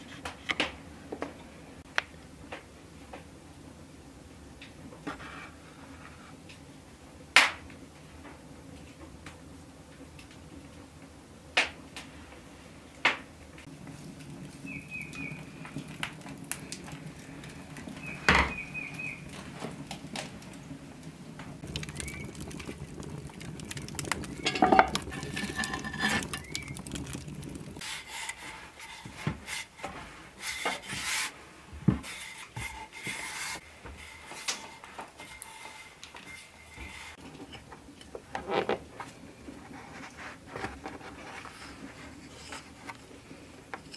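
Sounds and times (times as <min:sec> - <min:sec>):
metal poker scraping coals: 0:13.6 - 0:20.6, 0:21.6 - 0:31.4, 0:32.0 - 0:38.8.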